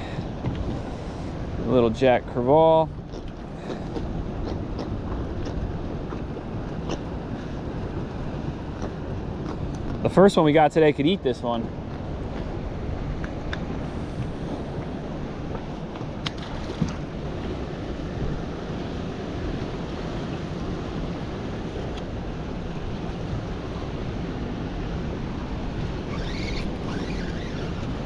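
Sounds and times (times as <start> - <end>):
water lapping around a boat: 0.0 - 28.0
high squeaks: 26.0 - 28.0.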